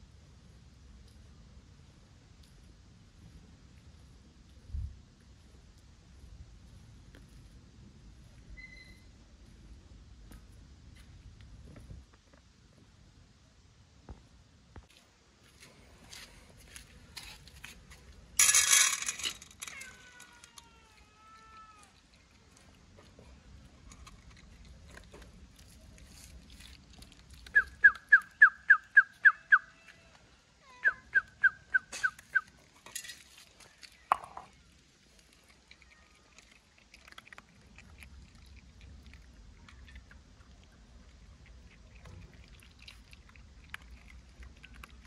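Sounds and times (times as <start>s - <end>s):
faint ticks and rustling: 0.8s - 12.9s, 14.1s - 28.4s, 31.7s - 45.0s
animal yelping: 27.5s - 32.6s.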